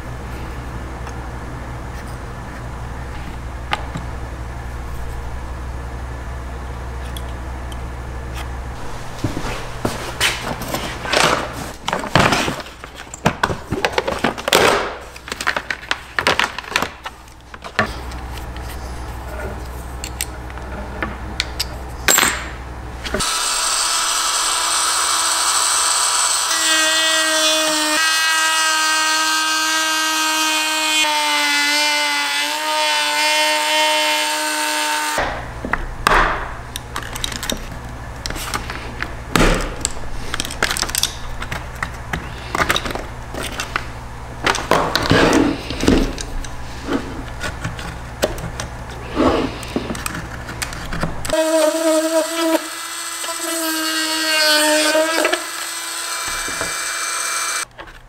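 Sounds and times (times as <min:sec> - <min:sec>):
rotary tool whining: 0:23.1 - 0:35.2, 0:49.1 - 0:57.7.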